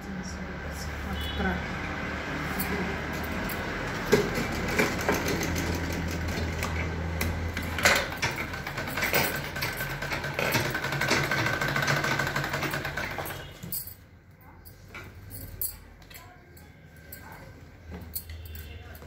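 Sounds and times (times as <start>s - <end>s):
sewing machine stitching: 3.8s - 13.6s.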